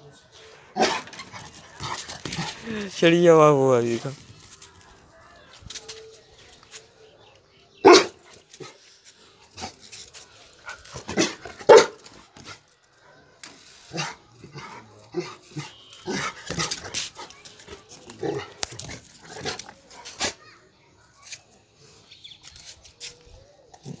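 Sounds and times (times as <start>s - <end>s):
dog barking: 0.8s - 1.1s, 7.8s - 8.2s, 11.2s - 12.0s.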